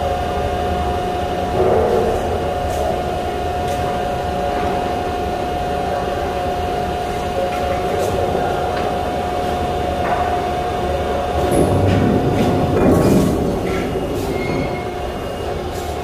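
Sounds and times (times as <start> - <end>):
machinery drone and whine: 0.0 - 16.0.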